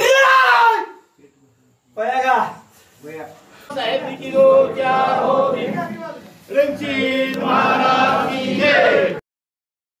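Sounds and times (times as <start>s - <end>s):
group of voices chanting: 3.7s - 9.2s.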